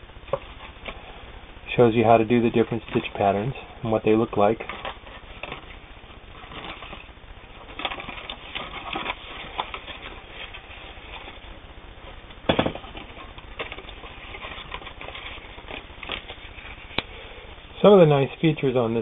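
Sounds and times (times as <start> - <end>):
paper pages rustling: 2.2 - 3.2, 4.4 - 11.5, 12.8 - 17.0.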